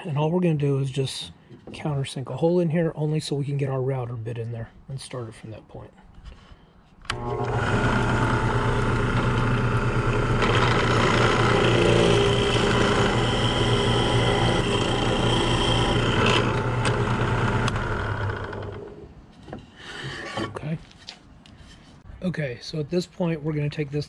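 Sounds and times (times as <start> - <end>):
drill bit boring into wood: 7.1 - 18.9
drill press motor hum: 7.1 - 19.0.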